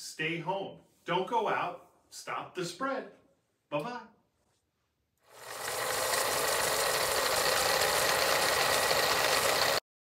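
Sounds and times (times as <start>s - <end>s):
film projector rattling: 5.3s - 9.8s.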